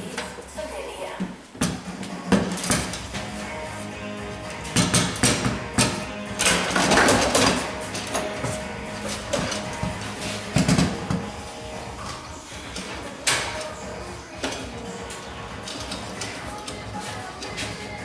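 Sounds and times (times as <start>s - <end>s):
foosball rods clacking: 4.4s - 18.0s.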